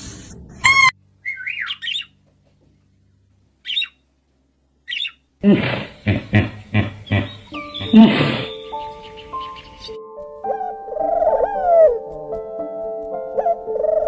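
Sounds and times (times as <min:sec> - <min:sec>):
parrot chirping calls: 0:00.6 - 0:02.2, 0:03.6 - 0:04.1, 0:04.8 - 0:05.3, 0:05.9 - 0:10.0.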